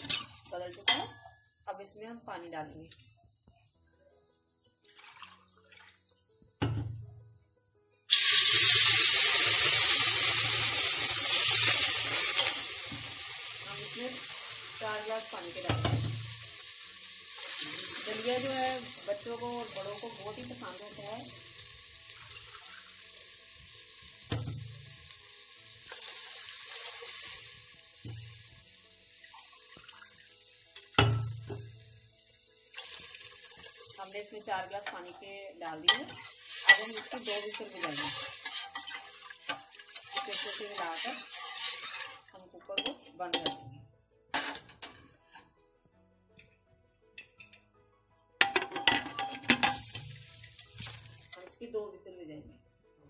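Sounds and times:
water hissing on hot metal: 8.1 - 30.7, 36.1 - 42.4, 49.7 - 51.4.

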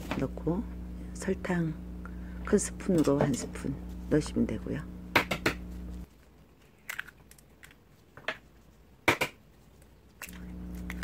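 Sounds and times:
low steady hum: 0.0 - 6.7, 9.8 - 11.0
eggs cracking: 6.5 - 8.1, 10.1 - 11.0.

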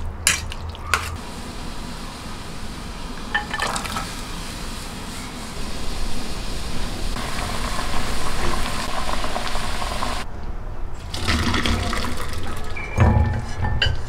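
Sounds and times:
water gushing into a sink: 7.2 - 10.2, 11.1 - 12.8
water bubbling in a pot: 7.2 - 10.3, 11.2 - 12.8.

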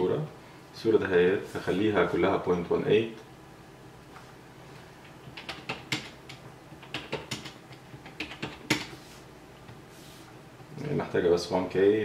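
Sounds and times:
keyboard key presses: 5.2 - 8.9.

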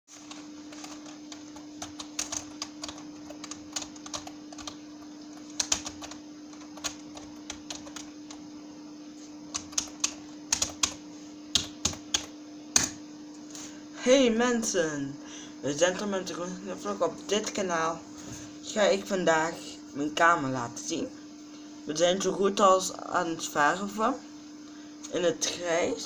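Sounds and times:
steady hum: 0.1 - 26.0
keyboard typing clicks: 1.8 - 4.8, 5.4 - 8.1, 9.5 - 11.0.

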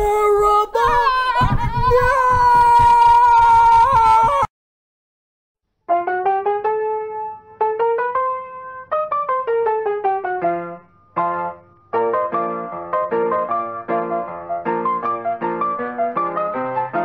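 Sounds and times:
keyboard playing simple tune: 5.9 - 17.0.

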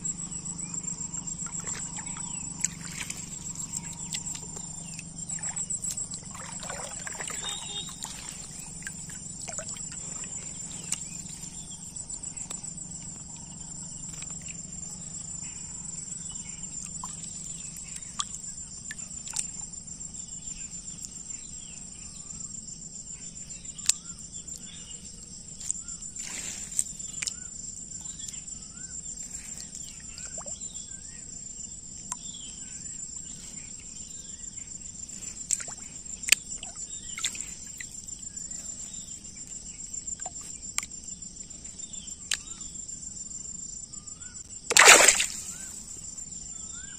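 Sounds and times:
insects chirring: 0.0 - 46.9.

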